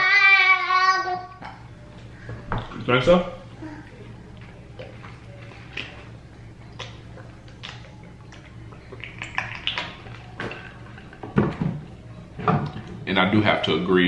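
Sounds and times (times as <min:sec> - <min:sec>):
low steady hum: 0:00.0 - 0:14.0
drinking and swallowing: 0:03.8 - 0:12.0.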